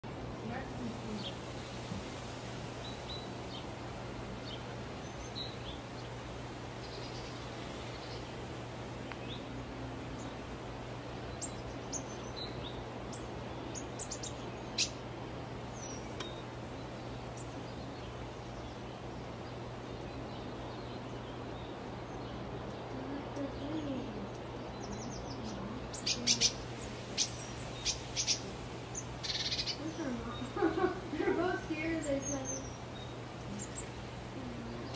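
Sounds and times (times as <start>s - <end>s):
lower wavering calls: 9.2s - 34.9s
high bird chirps: 24.8s - 30.6s.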